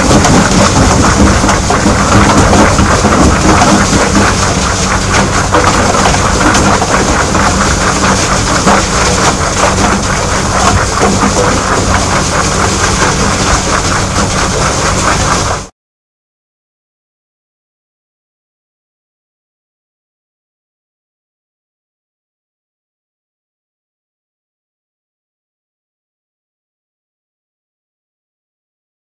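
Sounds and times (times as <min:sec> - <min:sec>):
rock clattering and knocking: 0:00.0 - 0:14.4
low machine hum: 0:00.0 - 0:15.7.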